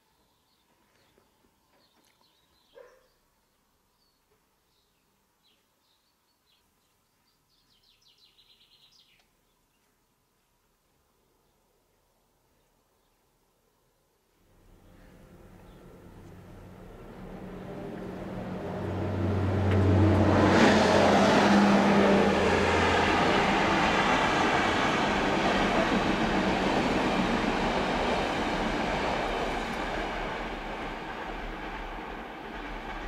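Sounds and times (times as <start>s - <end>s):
locomotive engine humming: 14.6s - 33.0s
train wheels rolling on rails: 15.2s - 33.0s.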